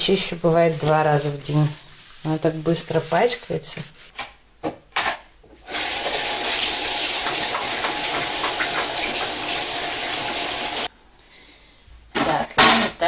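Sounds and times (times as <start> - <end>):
water running into washbasin: 5.6 - 10.9.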